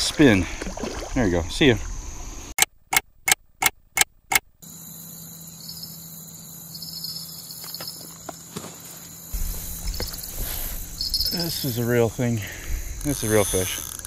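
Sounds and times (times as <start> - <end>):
insects chirring: 0.0 - 2.6, 4.6 - 14.0
low rumble: 9.4 - 13.1.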